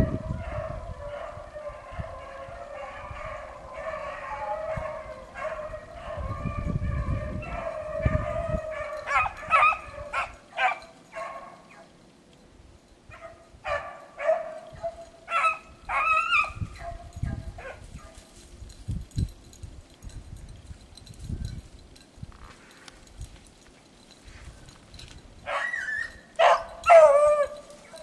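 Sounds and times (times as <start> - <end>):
hounds baying and yelping: 0.0 - 12.0, 13.1 - 18.4, 23.9 - 28.0.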